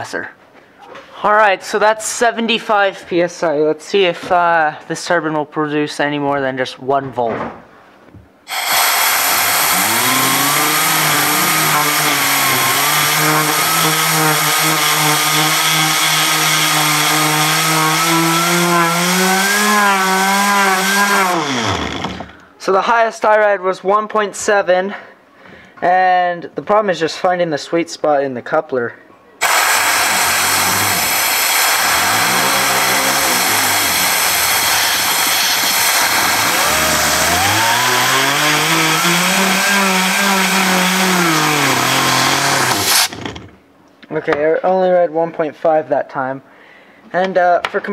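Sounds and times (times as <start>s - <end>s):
air jet hissing: 8.5s - 15.6s, 29.4s - 38.3s
turbine and motor whine: 8.5s - 15.6s, 29.4s - 39.6s.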